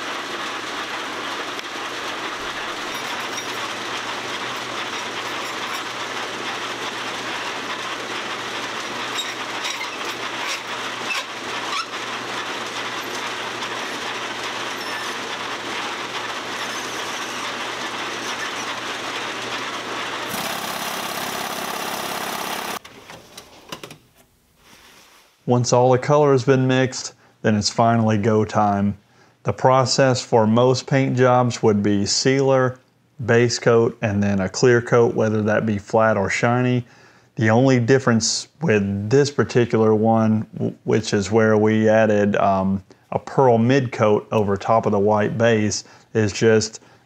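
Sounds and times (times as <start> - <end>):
machinery rattling rumble: 0.0 - 22.8.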